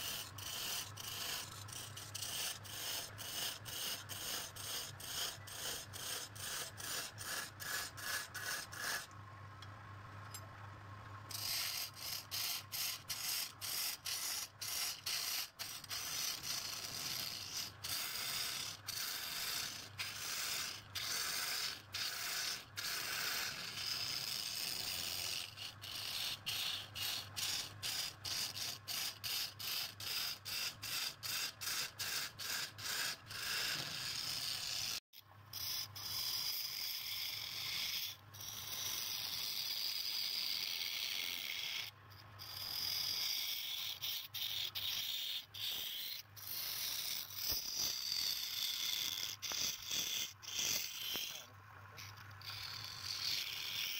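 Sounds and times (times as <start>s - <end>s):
tool scraping wood on lathe: 0.0s - 9.1s, 11.3s - 35.0s, 43.6s - 53.9s.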